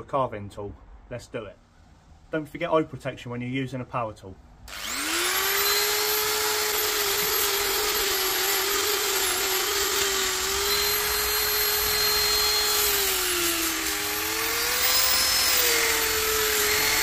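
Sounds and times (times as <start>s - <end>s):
belt sander grinding steel: 4.7s - 17.0s.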